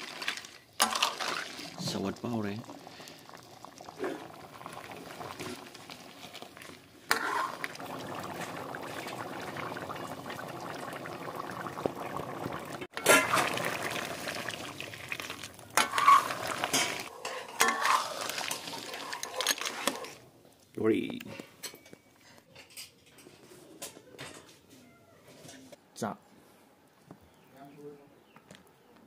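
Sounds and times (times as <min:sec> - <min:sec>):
curry boiling and bubbling: 0:00.0 - 0:21.4
metal ladle clinking on pan: 0:16.7 - 0:18.0.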